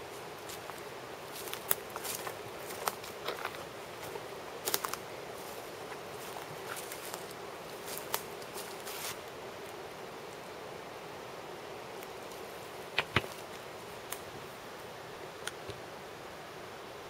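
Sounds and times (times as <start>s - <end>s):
footsteps crunching on dry leaves: 0.0s - 9.3s
steady outdoor hiss: 0.0s - 17.0s.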